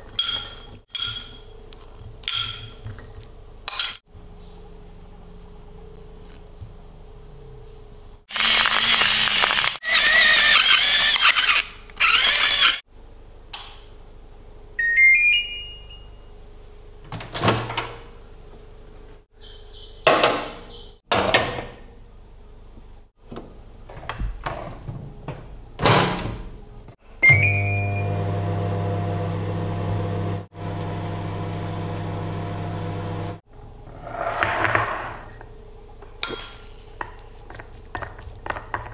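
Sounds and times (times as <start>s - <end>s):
microwave beeps: 14.8s - 16.3s, 27.2s - 28.4s
microwave oven humming: 26.4s - 33.8s.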